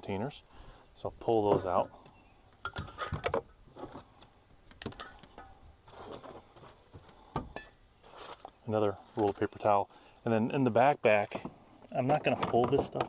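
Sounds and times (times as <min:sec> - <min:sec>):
metal canisters knocking and clinking: 0:02.6 - 0:03.4, 0:04.8 - 0:05.5.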